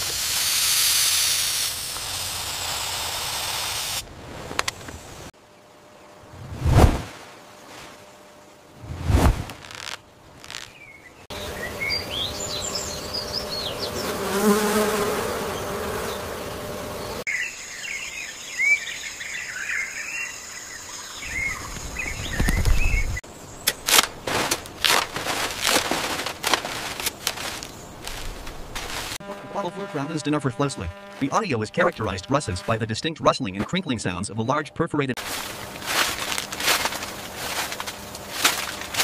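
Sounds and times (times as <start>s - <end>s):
insects buzzing: 0.0s - 32.8s, 35.2s - 39.0s
dense rustling and crackling: 8.8s - 10.8s, 21.8s - 29.3s, 35.2s - 39.0s
birds chirping: 9.6s - 14.5s, 15.3s - 25.2s, 26.3s - 35.1s.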